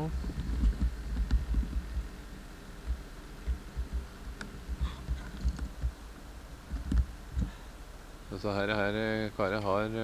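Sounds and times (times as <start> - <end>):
low thumps and rumble: 0.1 - 2.2, 2.8 - 7.6.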